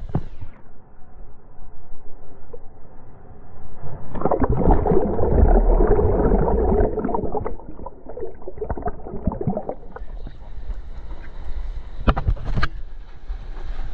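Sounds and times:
muffled underwater rush: 3.8 - 11.4
water splashing and bubbling: 4.0 - 10.6.

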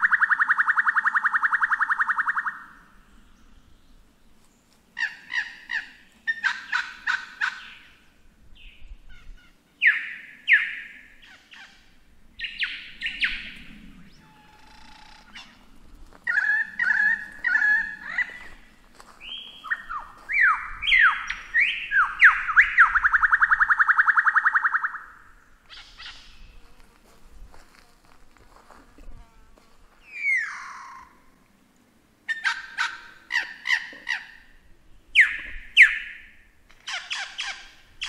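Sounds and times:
lyrebird singing: 0.0 - 2.8, 5.0 - 8.0, 8.6 - 26.6, 30.0 - 31.2, 35.1 - 38.0.

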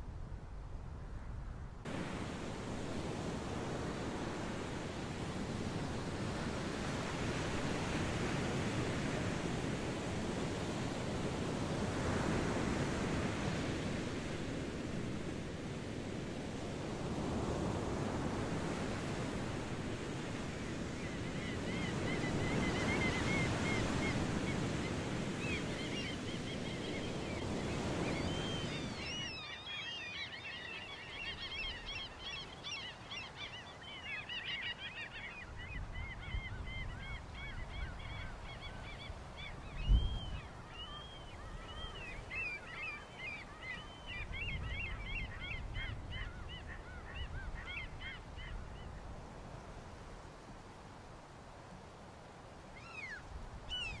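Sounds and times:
wind: 0.0 - 54.0
waves washing onto shore: 1.9 - 29.2.

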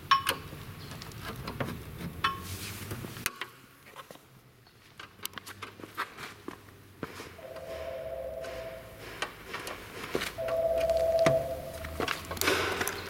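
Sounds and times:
background noise: 0.0 - 13.0.

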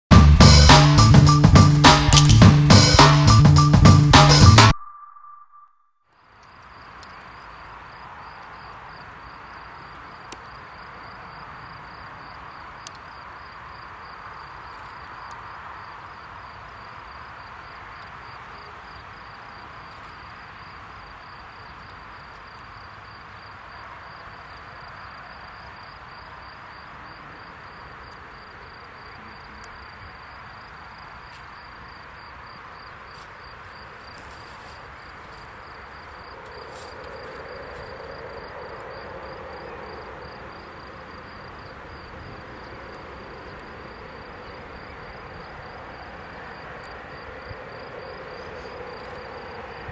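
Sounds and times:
crickets chirping: 0.9 - 49.9
faint steady rushing: 34.2 - 49.9.

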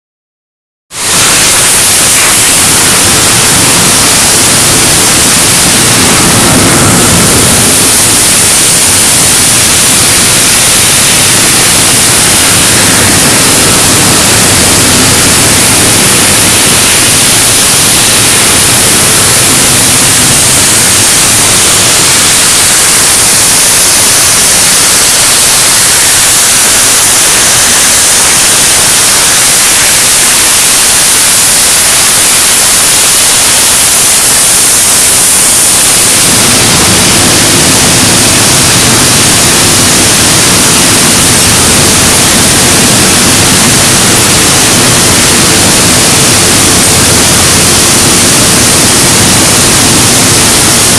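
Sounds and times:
flame-cutting torches hissing: 1.0 - 36.7.

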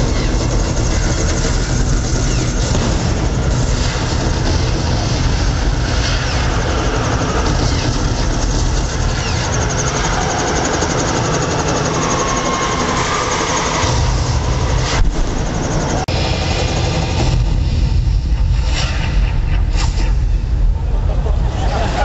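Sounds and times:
helicopter running: 0.0 - 22.0.

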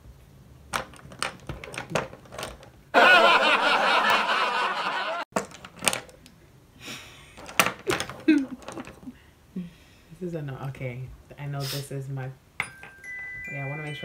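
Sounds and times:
loud laughter: 3.0 - 5.2.

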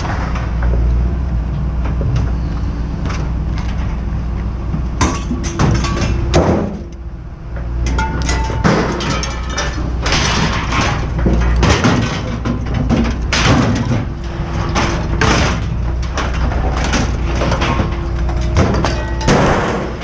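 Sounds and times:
heavy machine engine rumbling: 0.0 - 20.0
metal scrap crashing: 5.0 - 6.9, 7.9 - 20.0.

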